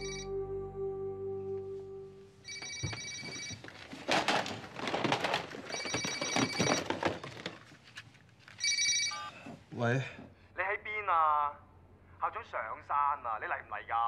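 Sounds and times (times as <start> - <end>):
telephone ringing electronic trills: 0.0 - 0.5, 1.9 - 3.7, 5.7 - 6.9, 8.6 - 9.4
plastic cassettes clattering: 3.3 - 8.6.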